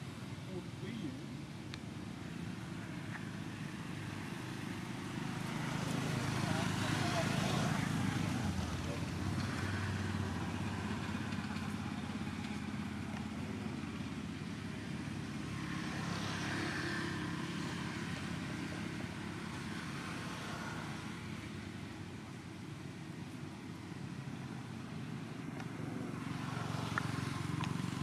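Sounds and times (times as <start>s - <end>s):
engine humming: 0.0s - 16.6s.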